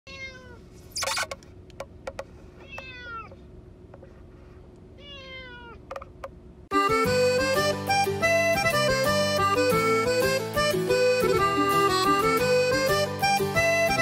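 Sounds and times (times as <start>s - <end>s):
cat meowing: 0.1s - 0.6s, 2.6s - 3.4s, 5.0s - 5.8s.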